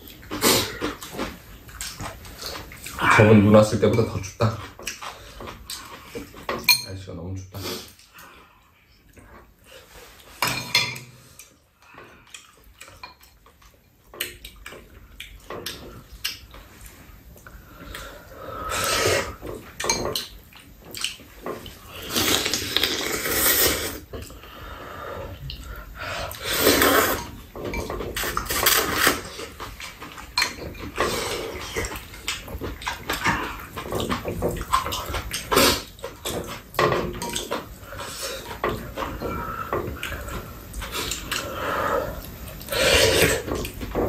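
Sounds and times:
slurping noodles: 0.3 - 1.1, 18.2 - 19.4, 21.7 - 24.4, 25.2 - 27.3, 34.6 - 36.7, 37.8 - 43.8.

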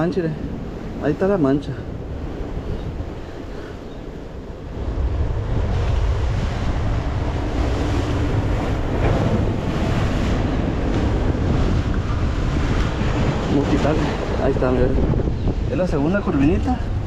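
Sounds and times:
surf against rocks: 0.0 - 17.0
wind buffeting microphone: 0.0 - 17.0.

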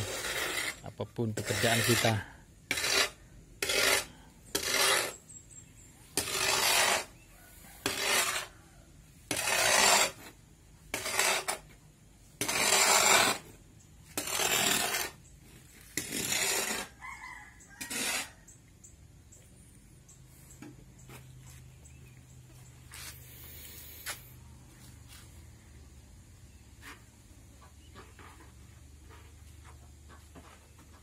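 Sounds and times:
shovel scraping concrete floor: 0.0 - 5.2, 6.1 - 7.2, 7.8 - 8.5, 9.3 - 11.8, 12.4 - 17.0, 17.8 - 18.4, 22.9 - 24.3.

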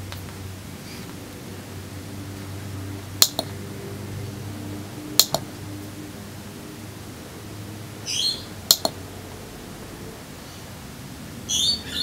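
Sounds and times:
steady low hum: 0.0 - 11.5
push button double click: 3.2 - 3.5, 5.2 - 5.4, 8.7 - 9.0.

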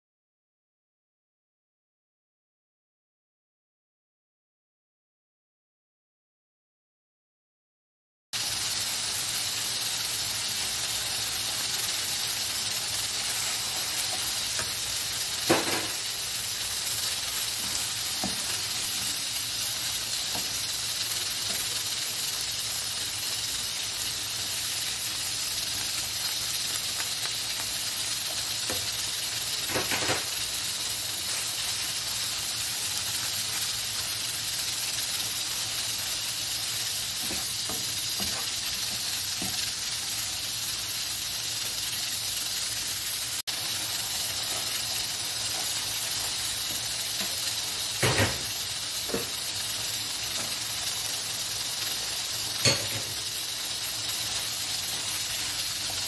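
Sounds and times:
chicken sizzling in oil: 8.4 - 56.0
spatula scraping and knocking pan: 13.2 - 16.2, 16.8 - 19.2, 37.2 - 39.7.

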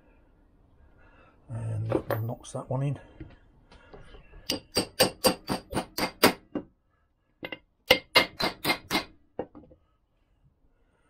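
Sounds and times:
hammer tapping metal tool: 4.4 - 6.7, 7.4 - 9.8.

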